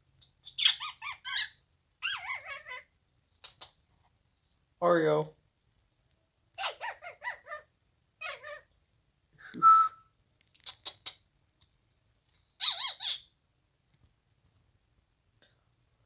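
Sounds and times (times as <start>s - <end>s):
cockatiel whistling and chattering: 0.2s - 3.8s, 6.6s - 8.7s, 12.6s - 13.3s
sharp bird clicks: 3.4s - 3.8s, 10.4s - 11.3s.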